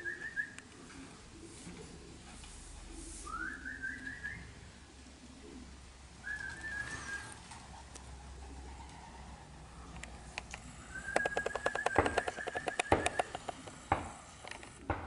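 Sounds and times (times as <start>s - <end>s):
pigeons cooing softly: 0.0s - 13.9s
short whistles: 3.2s - 4.5s, 6.2s - 7.4s, 10.8s - 13.2s.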